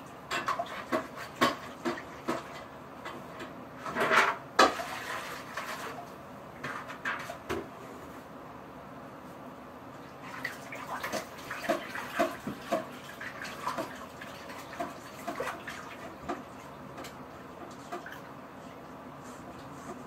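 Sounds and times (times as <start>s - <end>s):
water splashing and trickling: 10.2s - 16.6s.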